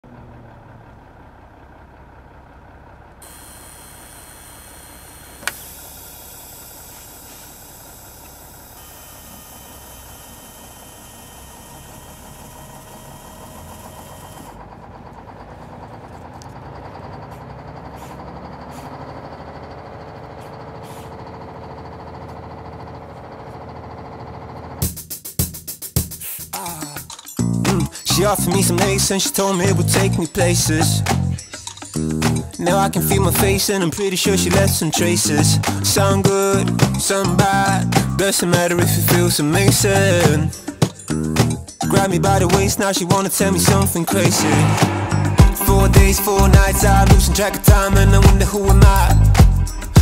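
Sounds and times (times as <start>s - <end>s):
small electric motor running: 3.2s - 14.6s.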